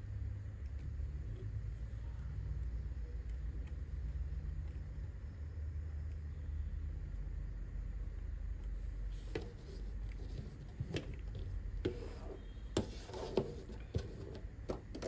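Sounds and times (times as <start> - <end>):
steady low hum: 0.0 - 15.0
cable rubbing across bench: 9.1 - 15.0.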